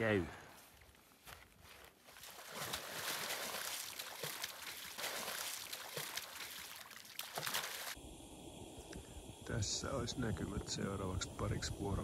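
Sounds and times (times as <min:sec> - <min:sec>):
water splashing and pouring: 0:02.2 - 0:08.0.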